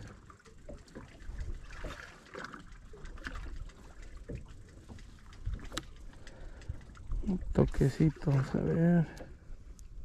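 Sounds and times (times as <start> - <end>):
faint knocks and clicks: 0.0 - 7.8
water lapping against boat hull: 0.0 - 10.0.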